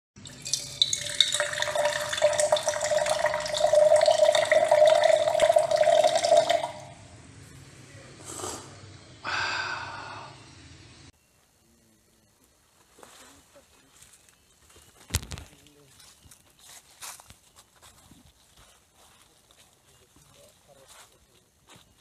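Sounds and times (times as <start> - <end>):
steady hum: 0.2 - 11.1.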